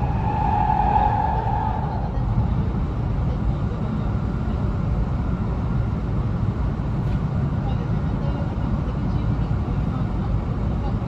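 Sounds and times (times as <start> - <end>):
train wheels rumbling on rails: 0.0 - 4.9.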